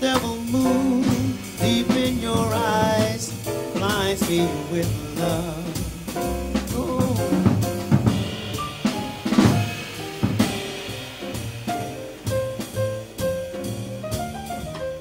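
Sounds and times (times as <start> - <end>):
jazz drum kit: 0.0 - 15.0
piano: 0.0 - 15.0
upright double bass: 0.0 - 15.0.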